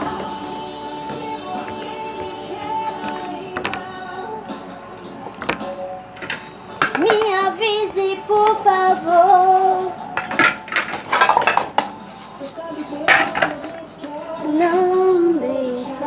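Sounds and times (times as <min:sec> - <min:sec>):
music with female singer: 0:00.0 - 0:16.0
dishes clattering in sink: 0:05.4 - 0:07.4, 0:10.2 - 0:12.0, 0:13.0 - 0:13.8.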